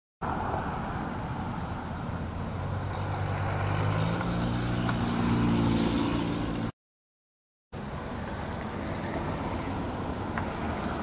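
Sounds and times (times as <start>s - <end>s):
traffic rumble: 0.2s - 6.7s, 7.8s - 11.0s
car engine accelerating: 1.3s - 6.7s.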